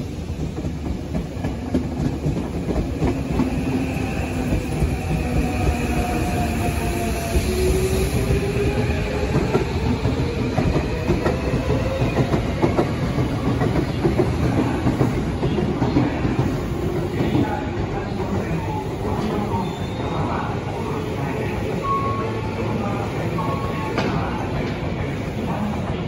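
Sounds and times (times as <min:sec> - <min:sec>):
train wheels clattering on rails: 0:00.1 - 0:06.7, 0:07.3 - 0:17.6.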